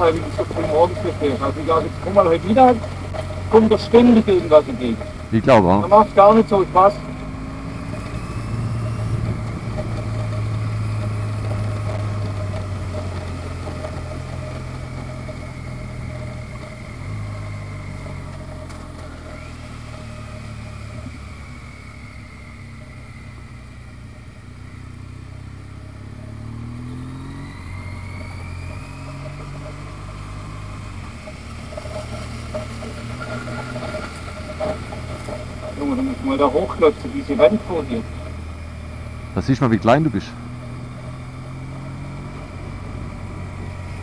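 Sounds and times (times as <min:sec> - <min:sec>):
motorcycle engine running: 0:00.0 - 0:44.0.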